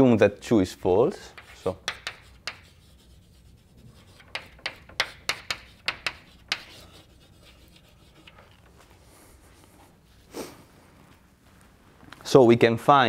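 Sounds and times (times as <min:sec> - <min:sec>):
chalk scraping on blackboard: 0:01.3 - 0:08.7.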